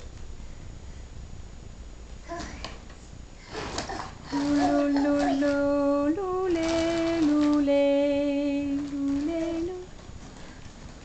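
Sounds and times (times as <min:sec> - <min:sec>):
toddler singing: 0:03.9 - 0:07.7.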